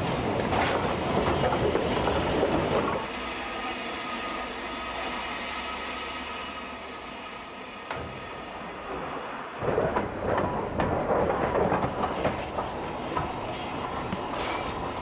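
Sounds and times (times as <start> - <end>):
train wheels clanking and rattling: 0.0 - 3.1, 7.8 - 15.0.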